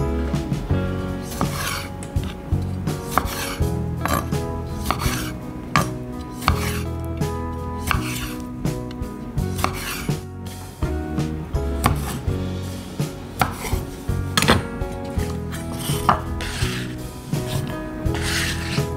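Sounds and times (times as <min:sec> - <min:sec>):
soft background music: 0:00.0 - 0:18.9
knife slicing tomatoes: 0:01.3 - 0:01.9, 0:03.1 - 0:06.8, 0:07.8 - 0:08.4, 0:09.6 - 0:10.1, 0:15.3 - 0:18.9.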